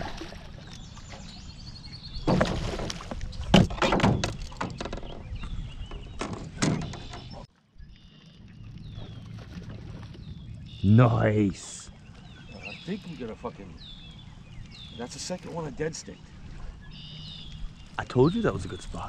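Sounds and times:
knocks and thuds on a boat: 2.2 - 7.5.

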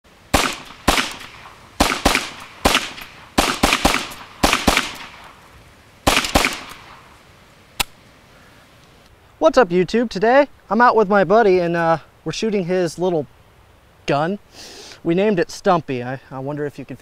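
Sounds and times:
pistol gunshots: 0.3 - 5.4, 6.0 - 7.1
sharp click: 7.8 - 8.0.

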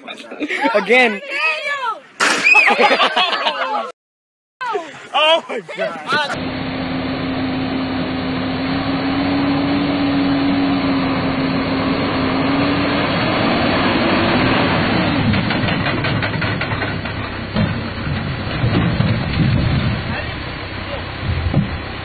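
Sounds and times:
truck engine running: 5.8 - 22.0
knocks and heavy thumps: 15.0 - 20.2, 21.2 - 21.9.

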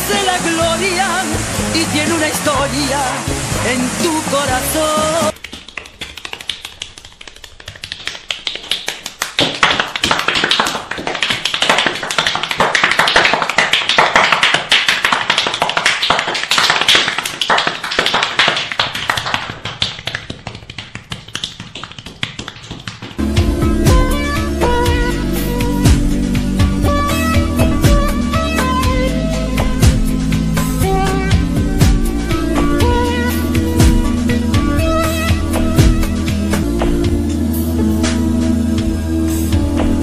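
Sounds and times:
hands slapping bare skin: 5.3 - 23.2, 31.8 - 37.2.

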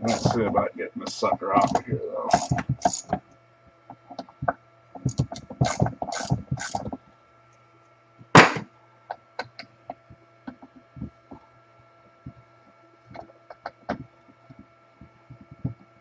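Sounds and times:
faint steady hum: 0.0 - 16.0
clatter of tools and metal parts: 5.0 - 6.9
loud knock: 8.4 - 8.7.

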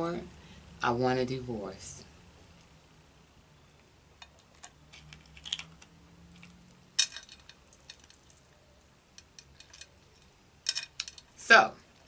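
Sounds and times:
shells being cracked and peeled: 4.2 - 8.5.

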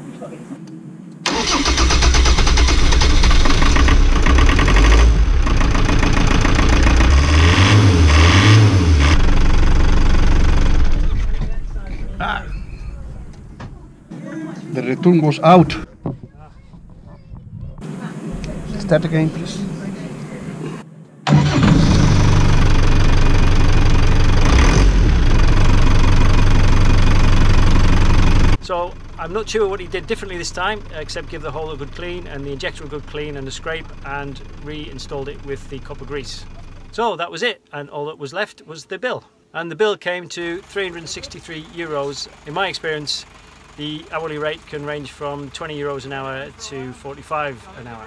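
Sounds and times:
diesel engine knocking: 2.4 - 12.0, 21.3 - 36.9, 40.6 - 47.7.

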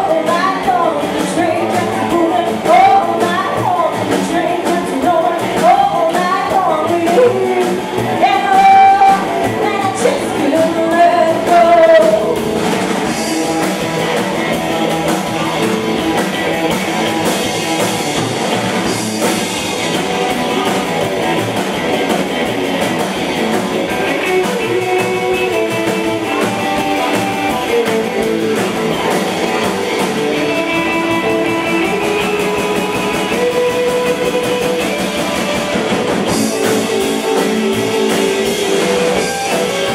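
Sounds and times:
woman singing: 0.0 - 12.4
rockabilly band playing: 0.0 - 39.9.

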